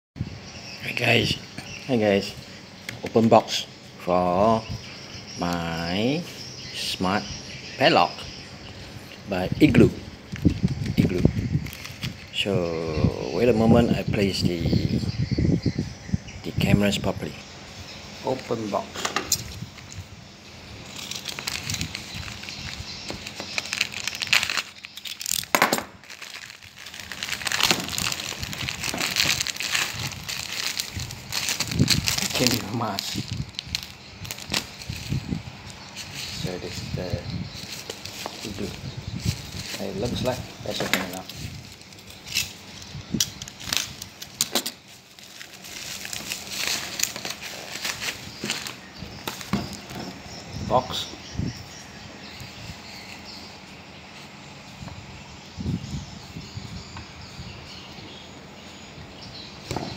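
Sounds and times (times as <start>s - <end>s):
plastic mailer crinkling: 10.3s - 12.4s, 20.8s - 50.0s.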